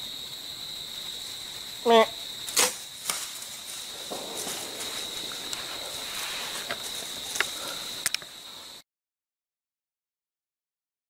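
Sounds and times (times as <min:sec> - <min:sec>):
high-pitched insect drone: 0:00.0 - 0:08.8
sharp clicks: 0:04.1 - 0:08.3.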